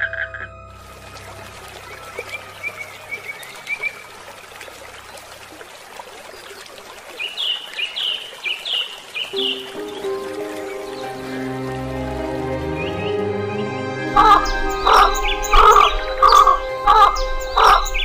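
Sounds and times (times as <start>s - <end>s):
water trickling: 0.7s - 13.4s, 14.0s - 18.0s
bird chirping: 14.1s - 18.0s.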